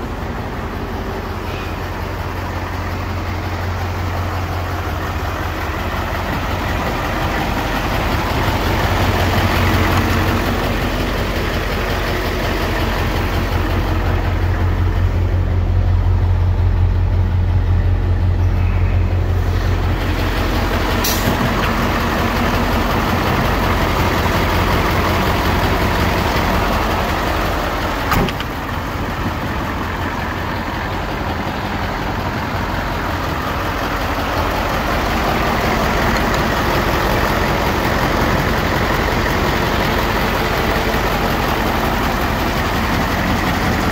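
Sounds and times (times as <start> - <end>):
diesel engine idling: 0.0 - 43.9.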